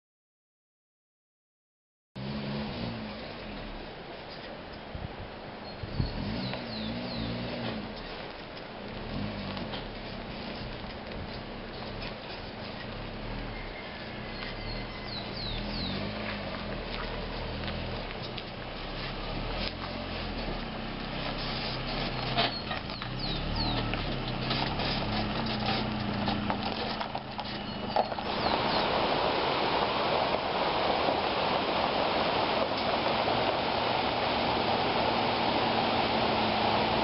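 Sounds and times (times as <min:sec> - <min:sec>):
engine hum: 0:02.2 - 0:37.0
stream rushing: 0:02.2 - 0:37.0
tyres crunching on dirt: 0:06.0 - 0:37.0
bird chirps: 0:13.4 - 0:16.1, 0:22.5 - 0:24.1, 0:27.4 - 0:29.0.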